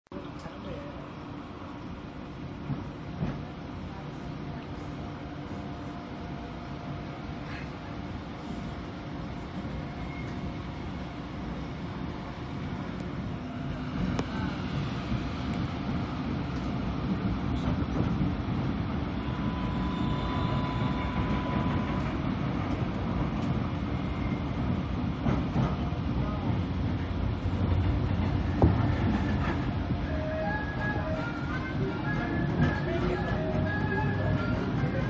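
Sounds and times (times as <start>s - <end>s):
electric train rumbling: 0.1s - 35.0s
traction inverter whine: 18.7s - 24.5s.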